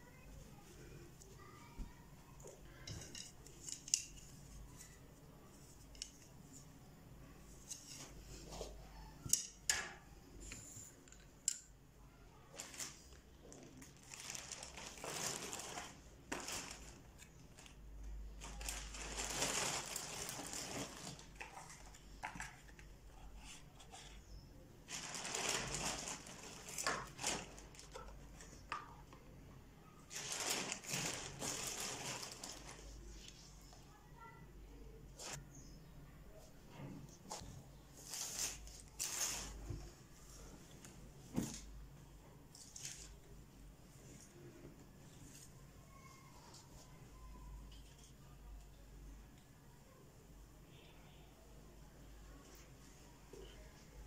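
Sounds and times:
plastic bag rustling: 12.5 - 22.6, 24.8 - 28.7, 30.0 - 33.6, 35.2 - 35.4, 38.0 - 39.7, 42.6 - 43.2.

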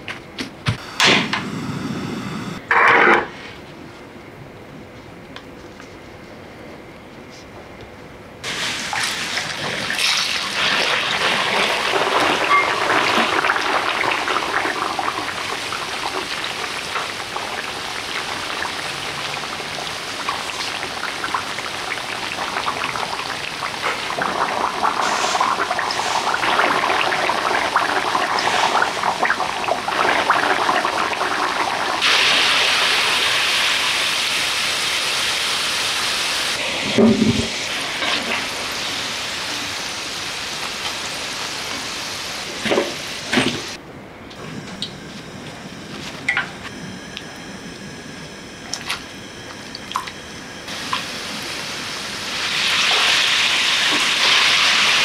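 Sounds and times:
potato sticks sizzling in oil: 50.7 - 55.0.

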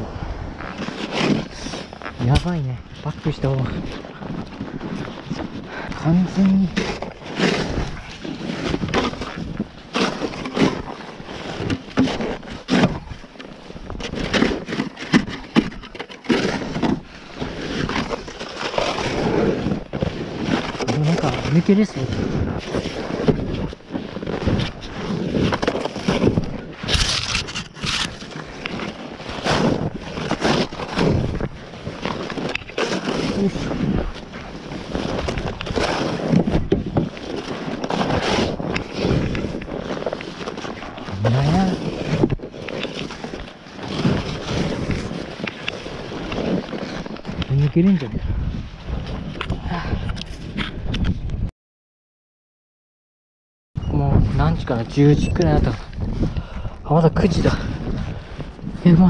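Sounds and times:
plastic shovel chopping packed snow: 6.0 - 13.2, 13.9 - 47.1.

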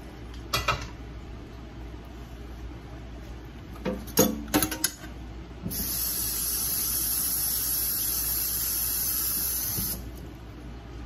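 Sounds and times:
steady high hiss: 5.7 - 10.1.

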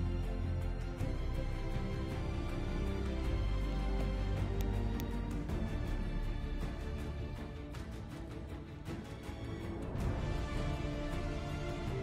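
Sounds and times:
background music with held notes: 0.0 - 12.0
light percussive ticks: 4.4 - 5.6.

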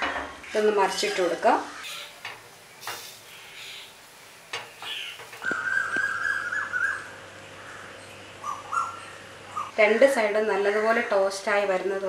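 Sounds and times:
metal spatula scraping griddle: 0.0 - 3.4.

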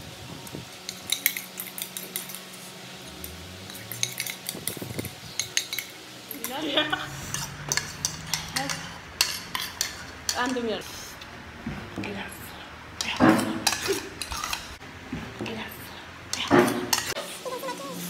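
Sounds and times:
spoons clinking against bowls: 0.8 - 2.6, 3.2 - 11.0, 12.2 - 14.8, 15.7 - 17.2.

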